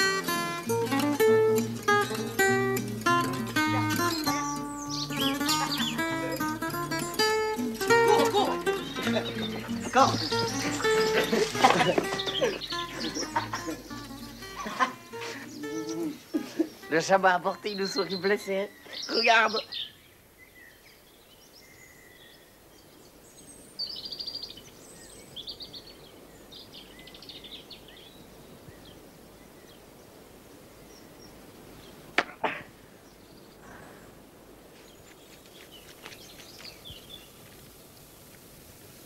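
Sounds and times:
birds chirping and trilling: 0.0 - 30.1
sharp crack: 32.2 - 32.7
brief rustle: 34.8 - 38.5.

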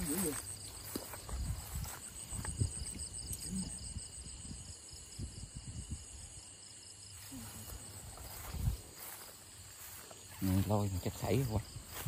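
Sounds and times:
footsteps in wet grass: 0.0 - 3.3, 7.2 - 12.0
crickets chirping: 0.0 - 12.0.

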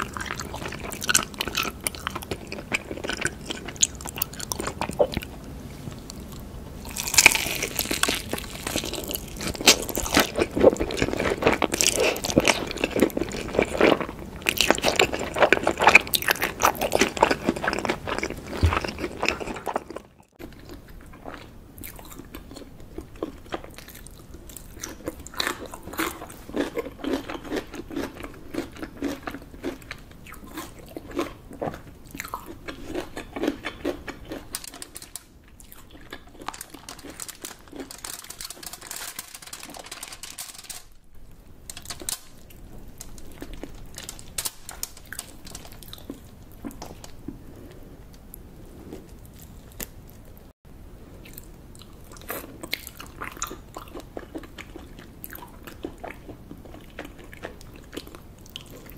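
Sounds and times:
crunching bites and chewing: 6.0 - 38.7
wet chewing and clicks: 6.0 - 38.8.

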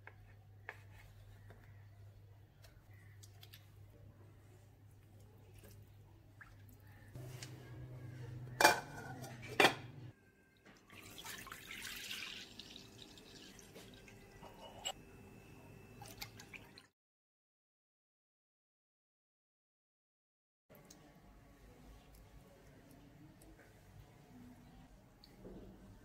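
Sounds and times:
milk pouring into a ceramic bowl: 10.9 - 14.5.

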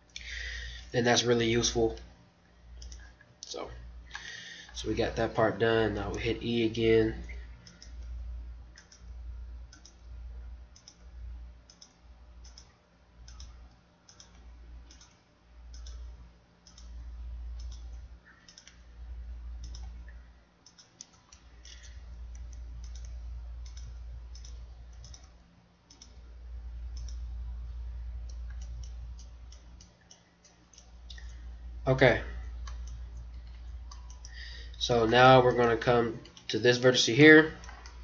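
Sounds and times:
computer keyboard clicks: 2.8 - 3.0, 7.6 - 9.1, 9.7 - 10.1, 10.7 - 11.1, 11.7 - 17.0, 17.6 - 18.8, 19.6 - 26.2, 26.9 - 27.2, 28.3 - 31.4, 32.6 - 34.4
mouse clicks: 9.7 - 10.0, 11.7 - 17.0, 17.6 - 18.8, 19.6 - 26.2, 26.9 - 27.2.

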